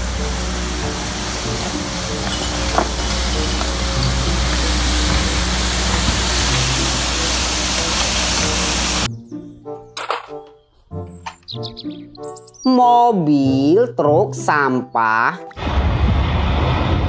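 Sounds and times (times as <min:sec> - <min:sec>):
low engine drone: 0:00.0 - 0:09.1, 0:15.6 - 0:17.0
road sweeper rushing noise: 0:00.0 - 0:09.1
music: 0:00.0 - 0:17.0.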